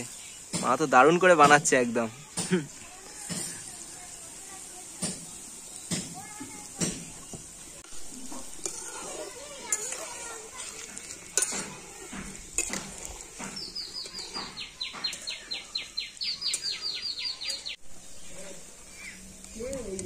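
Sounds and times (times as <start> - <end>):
food sizzling in hot oil: 0.0 - 20.0.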